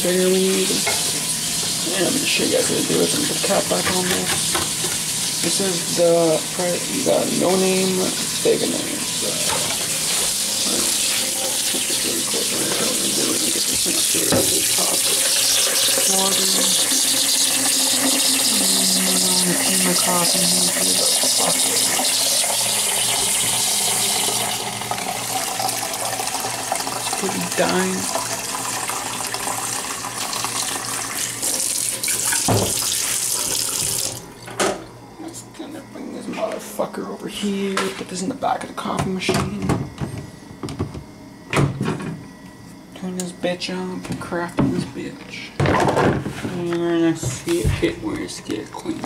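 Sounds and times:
tap running into metal sink: 0:03.4 - 0:05.5, 0:31.4 - 0:34.8
knock on sink: 0:14.3 - 0:14.6, 0:32.4 - 0:32.8
tap water splashing into carafe: 0:24.2 - 0:34.8.

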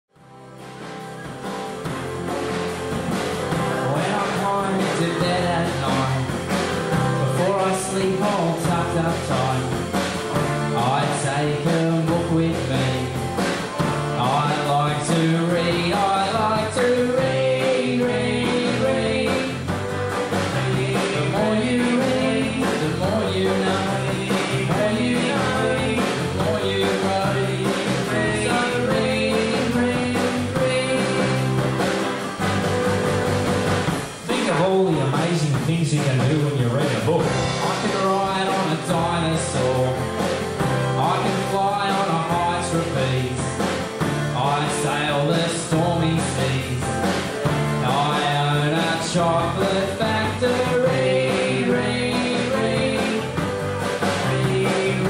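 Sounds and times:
drum kit beat: 0:00.1 - 0:55.0
live rock band playing: 0:00.1 - 0:55.0
man singing: 0:03.7 - 0:09.9, 0:10.6 - 0:13.4, 0:14.1 - 0:19.7, 0:20.4 - 0:31.7, 0:34.2 - 0:40.2, 0:40.9 - 0:43.6, 0:44.3 - 0:47.0, 0:47.8 - 0:53.4, 0:54.0 - 0:55.0.

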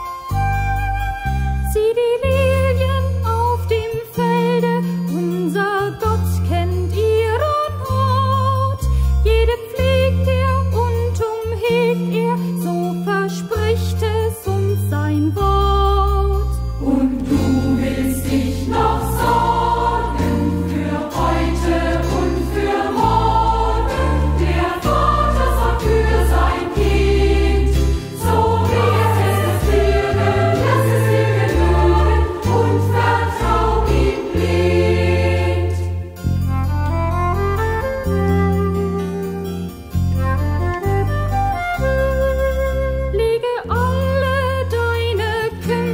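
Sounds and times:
instrumental accompaniment: 0:00.0 - 0:45.9
choir singing sacred song: 0:16.8 - 0:36.2.

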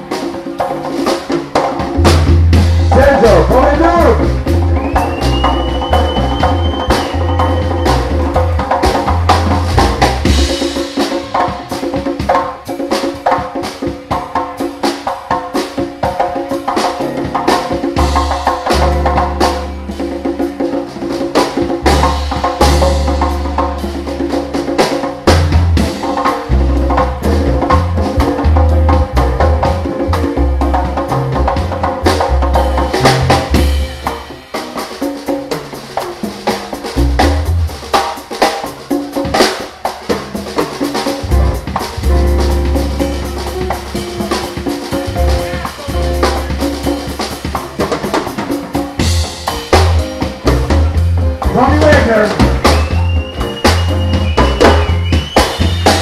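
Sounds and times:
drum kit: 0:00.0 - 0:56.0
live jazz band: 0:00.0 - 0:56.0
electric bass line: 0:02.0 - 0:10.7, 0:18.0 - 0:20.2, 0:21.8 - 0:24.6, 0:25.2 - 0:34.5, 0:37.0 - 0:37.9, 0:41.2 - 0:47.4, 0:49.0 - 0:56.0.

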